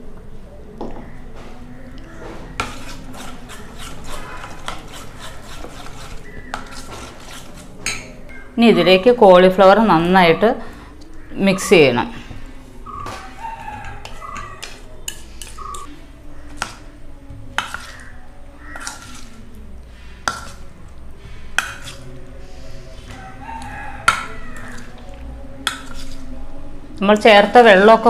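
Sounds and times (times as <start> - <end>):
spoon clinking against steel bowl: 2.6 - 8.6, 13.1 - 15.9, 18.7 - 19.4, 20.2 - 20.6, 21.6 - 22.0, 25.6 - 26.2
rooster crowing: 12.8 - 14.9, 23.1 - 25.0.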